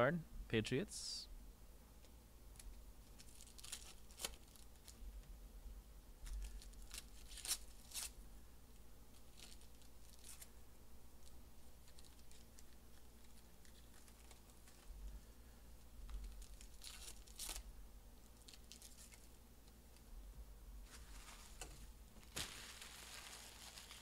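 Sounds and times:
foil wrappers tearing and crinkling: 3.0 - 5.0, 6.3 - 8.2, 9.2 - 10.5, 11.8 - 14.9, 16.2 - 17.7, 18.4 - 19.3, 21.1 - 24.0.

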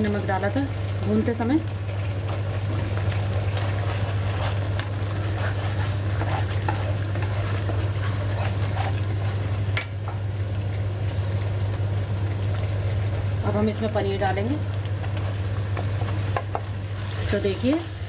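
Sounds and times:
steady low hum: 0.0 - 18.0
small crackles and scrapes: 1.9 - 9.8
spatula stirring thick sauce: 2.0 - 9.6.

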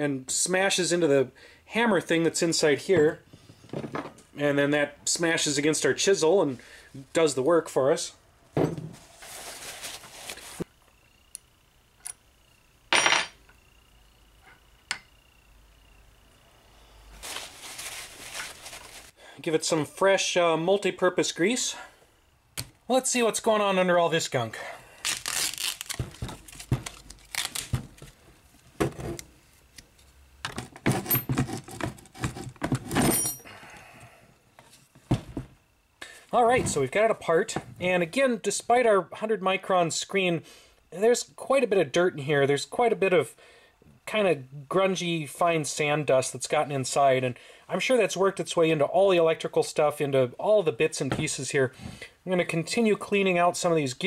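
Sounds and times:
tape tearing and peeling: 25.0 - 28.2.

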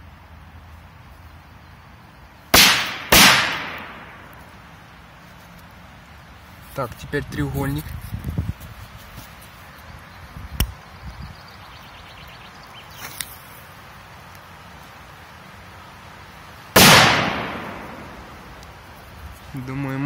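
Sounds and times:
firecracker bang: 2.5 - 4.3, 16.8 - 18.5
fuse crackling: 2.5 - 9.8, 12.6 - 20.0.

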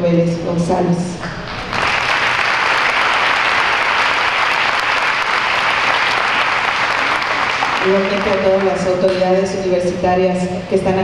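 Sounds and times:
audience applauding: 1.2 - 9.2.

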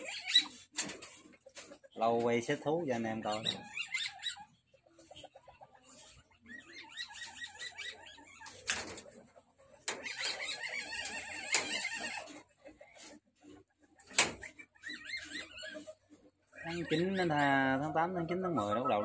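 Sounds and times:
civet chattering calls: 0.0 - 0.7, 3.2 - 5.2, 6.4 - 8.7, 10.0 - 12.3, 14.4 - 19.0.

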